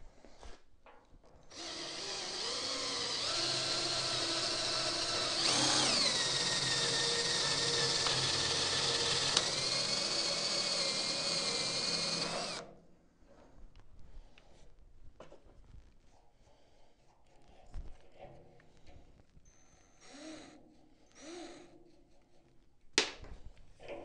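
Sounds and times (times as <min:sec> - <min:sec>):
cordless drill motor whine: 0:01.5 - 0:12.6.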